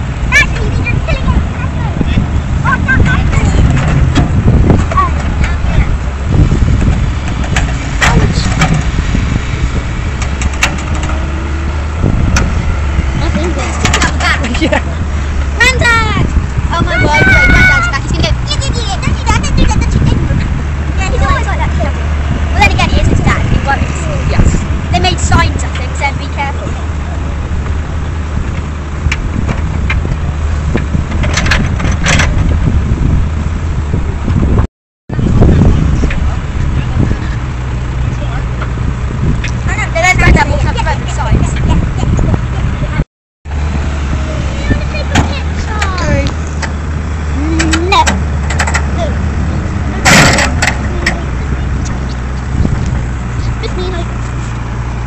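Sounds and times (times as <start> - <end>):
excavator diesel engine under load: 0.0 - 55.0
wind rumbling on microphone: 0.0 - 55.0
sharp metal clanks: 50.0 - 51.2.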